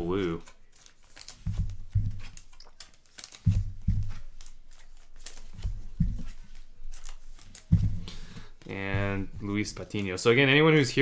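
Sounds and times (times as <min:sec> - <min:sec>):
cards rustling and scraping: 0:00.1 - 0:10.2
soft thumps: 0:01.4 - 0:02.4, 0:03.5 - 0:04.5, 0:05.5 - 0:06.6, 0:07.6 - 0:10.0.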